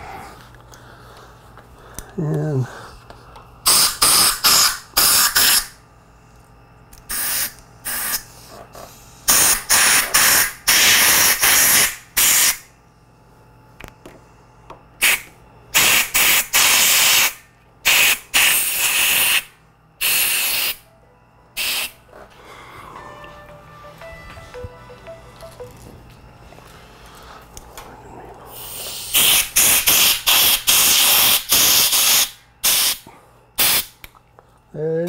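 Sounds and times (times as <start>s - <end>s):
air blow gun hissing: 3.6s - 5.8s, 7.1s - 8.4s, 9.2s - 12.6s, 15.0s - 20.8s, 21.6s - 22.0s, 28.5s - 33.0s, 33.6s - 33.9s.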